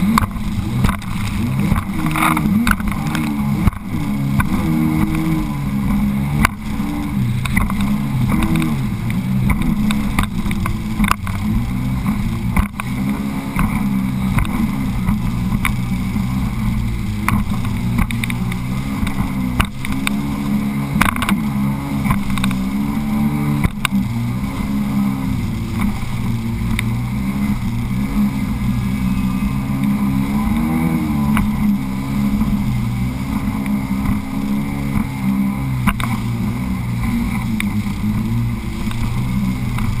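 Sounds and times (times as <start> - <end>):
watercraft engine at speed: 0.0 - 40.0
hull knocking on water: 7.4 - 16.4.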